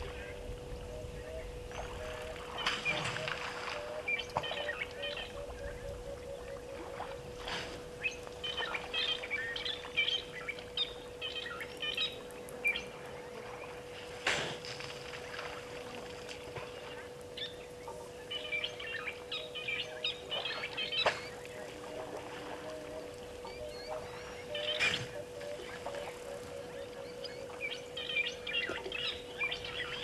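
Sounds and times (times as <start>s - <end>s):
birds chirping: 0.0s - 6.8s, 8.0s - 13.9s, 16.4s - 30.0s
faint steady tone: 0.0s - 30.0s
water sloshing: 12.1s - 18.2s, 20.1s - 26.5s.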